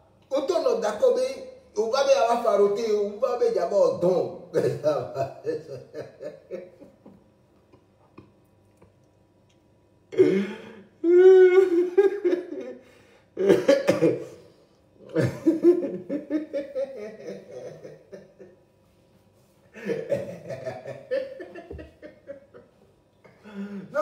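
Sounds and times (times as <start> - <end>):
man laughing loudly: 4.6 - 7.1, 11.1 - 14.2, 15.1 - 18.6, 19.7 - 22.8.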